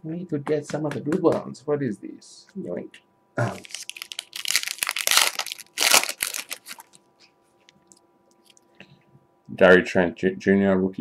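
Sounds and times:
foil wrapper tearing and crinkling: 0:03.5 - 0:07.0.

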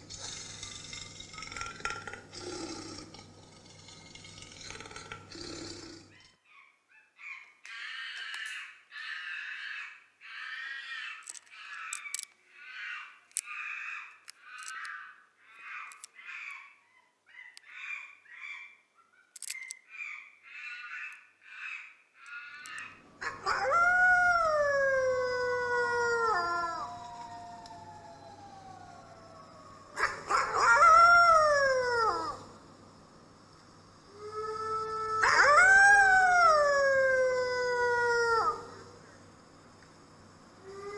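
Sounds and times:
wolf howling: 0:23.2 - 0:32.6, 0:34.1 - 0:39.2.

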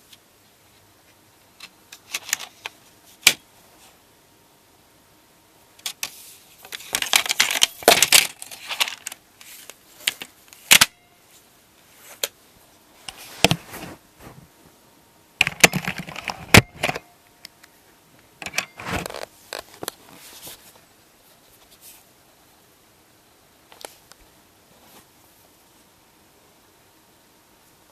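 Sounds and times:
keyboard parts clattering and scraping: 0:01.6 - 0:03.4, 0:05.8 - 0:11.0, 0:15.4 - 0:17.1, 0:18.4 - 0:20.8.

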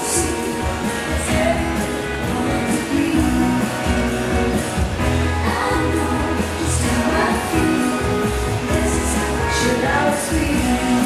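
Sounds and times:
amplified guitar and bass backing: 0:00.0 - 0:11.0
woman singing into a microphone: 0:00.0 - 0:11.0.

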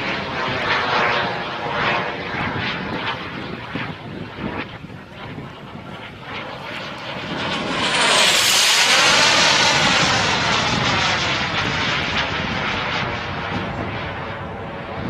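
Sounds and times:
model jet turbine flying past: 0:00.0 - 0:15.0.

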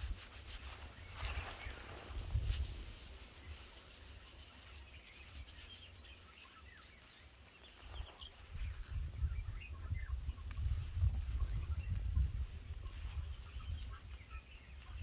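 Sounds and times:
birds chirping: 0:03.2 - 0:15.0.

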